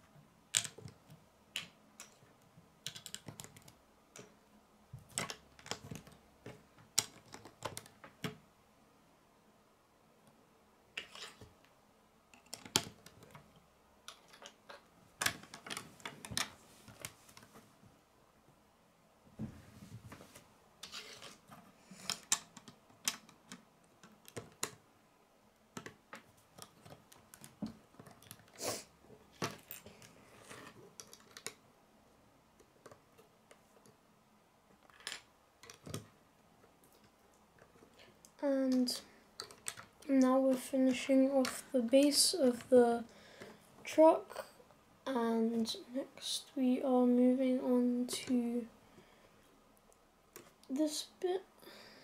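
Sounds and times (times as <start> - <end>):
plastic bricks clicking together: 0.5 - 2.2, 2.8 - 4.4, 5.1 - 8.4, 12.3 - 13.4, 14.1 - 17.2, 20.8 - 24.8, 25.8 - 28.6, 29.4 - 31.6, 34.8 - 36.1, 36.9 - 40.0.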